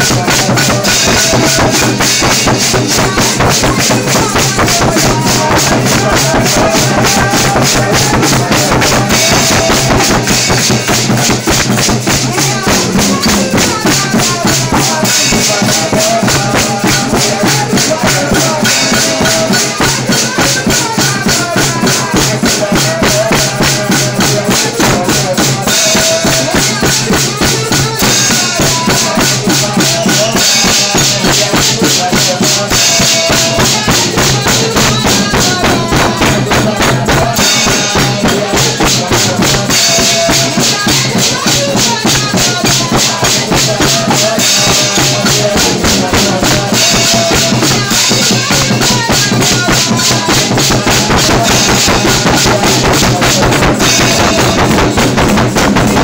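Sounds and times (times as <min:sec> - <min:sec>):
drums beating: 0:00.0 - 0:56.0
tambourines: 0:00.0 - 0:56.0
voices singing: 0:00.0 - 0:56.0.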